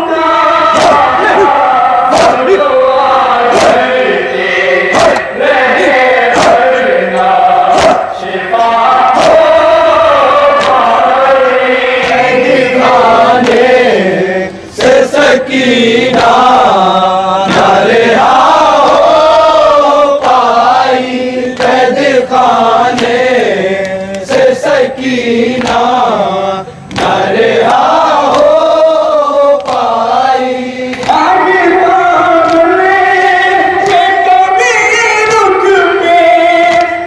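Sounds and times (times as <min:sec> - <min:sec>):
men chanting a lament: 0:00.0 - 0:37.0
chest-beating slaps: 0:00.7 - 0:01.5, 0:02.1 - 0:02.6, 0:03.5 - 0:03.9, 0:04.9 - 0:08.2, 0:09.1 - 0:09.6, 0:10.6 - 0:10.9, 0:12.0 - 0:13.8, 0:16.0 - 0:16.5, 0:22.9 - 0:24.4, 0:25.5 - 0:25.9, 0:26.9 - 0:28.6, 0:29.6 - 0:29.9, 0:33.8 - 0:34.1.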